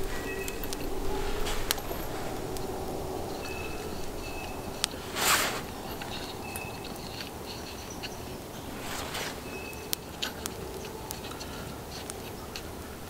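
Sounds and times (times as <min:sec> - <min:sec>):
cloth brushing: 0:00.0 - 0:08.0, 0:08.6 - 0:09.8
woodland background: 0:00.0 - 0:13.0.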